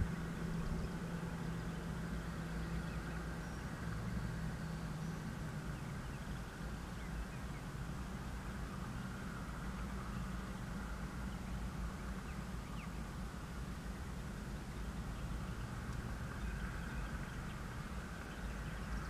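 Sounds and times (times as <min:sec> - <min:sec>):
hum: 0:00.0 - 0:05.3
low engine drone: 0:00.0 - 0:19.0.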